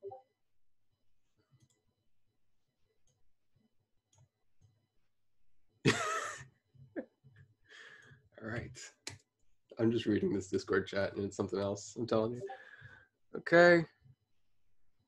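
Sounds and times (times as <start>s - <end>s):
burst of laughter: 5.9s - 6.4s.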